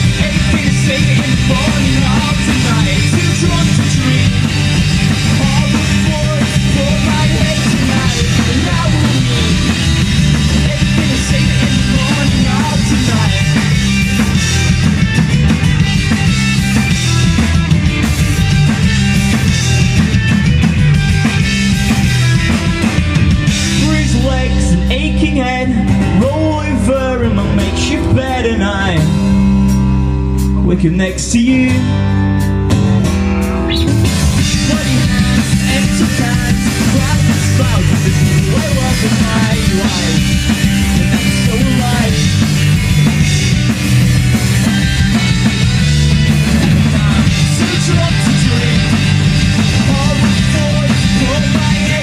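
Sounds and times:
man singing: 0.0 - 4.6, 5.2 - 13.8, 23.6 - 29.3, 30.6 - 32.0, 34.4 - 42.7, 46.5 - 52.0
punk rock band playing: 0.0 - 52.0.

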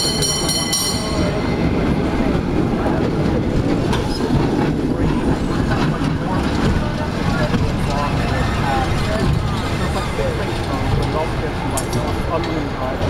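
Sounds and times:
high metallic ringing: 0.0 - 1.6
cable car rumbling on rails: 0.0 - 13.0.

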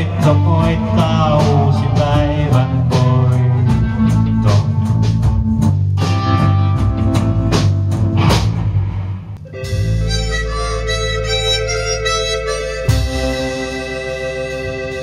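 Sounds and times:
bass guitar: 0.0 - 15.0
drums: 0.0 - 15.0
harmonica long notes: 9.4 - 15.0.

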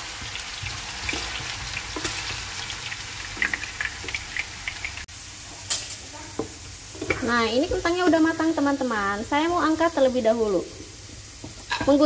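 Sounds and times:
oil crackling and popping: 0.0 - 5.1
potatoes sizzling in hot oil: 0.0 - 12.0.

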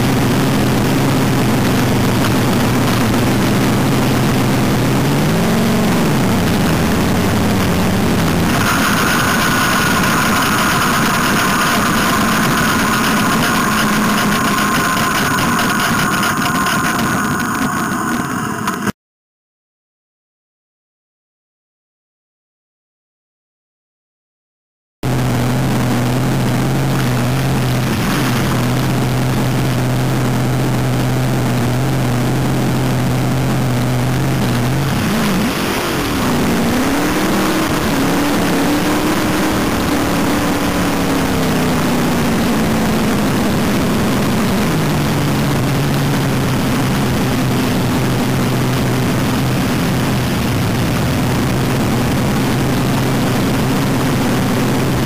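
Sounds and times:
dragster engine idling: 0.3 - 18.9.

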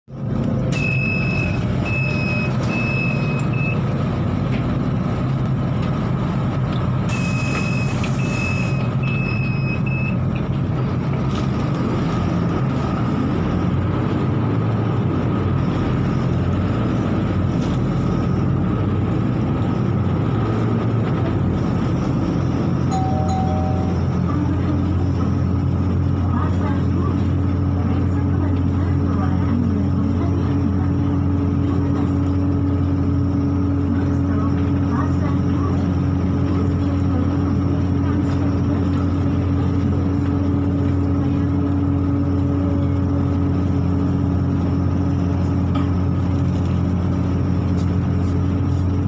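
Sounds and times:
bus engine and road hum: 0.1 - 49.0
short low tone: 22.9 - 24.4.

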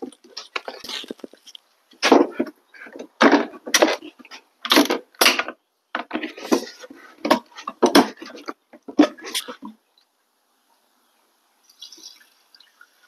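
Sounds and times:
handling knocks and scrapes: 0.0 - 9.7.

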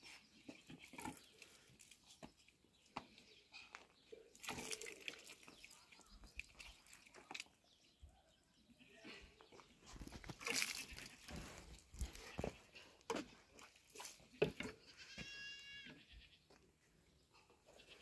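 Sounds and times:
water splashing: 4.4 - 7.6.

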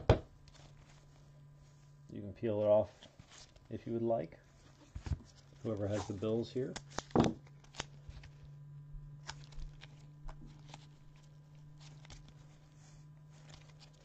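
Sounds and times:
low electrical hum: 0.0 - 14.0
soft clicks and rustles of cards: 9.1 - 14.0.

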